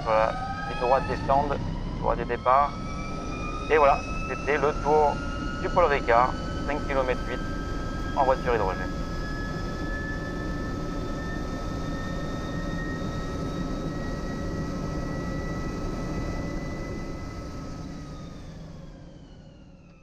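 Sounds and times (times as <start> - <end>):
electric race car high whine: 0.0 - 20.0.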